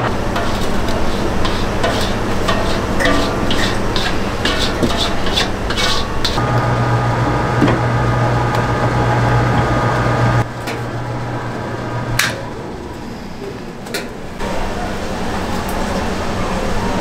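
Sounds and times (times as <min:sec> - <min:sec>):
mixer beater scraping and splashing: 0:00.0 - 0:06.6
mixer motor hum: 0:05.5 - 0:13.0.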